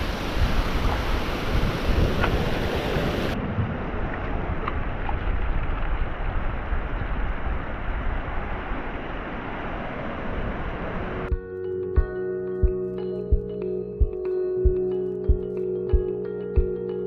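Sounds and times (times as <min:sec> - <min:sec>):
small waves washing over sand: 0:00.0 - 0:11.3
wind rumbling on microphone: 0:00.0 - 0:11.3
music with marimba-like notes: 0:11.3 - 0:17.0.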